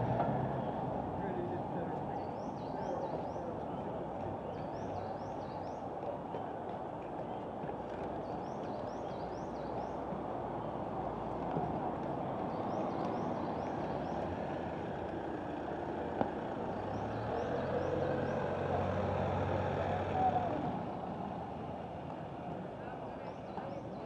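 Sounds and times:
road traffic hum: 0.0s - 24.0s
car engine driving past: 12.7s - 21.9s.

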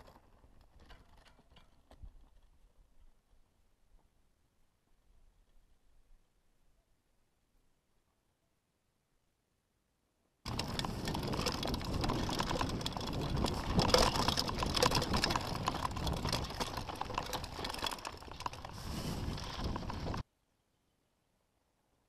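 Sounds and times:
mountain bike rattling over dirt: 0.0s - 3.2s, 10.5s - 20.2s.

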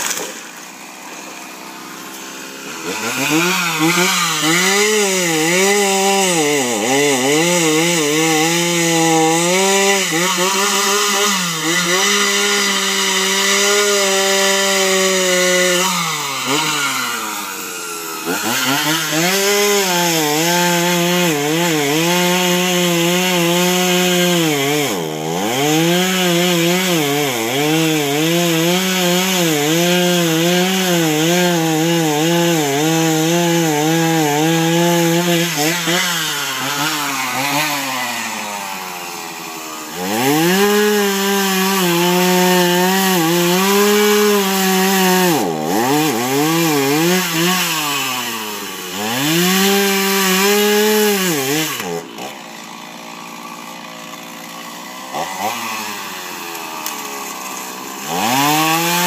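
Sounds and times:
chainsaw engine revving: 0.0s - 59.0s.

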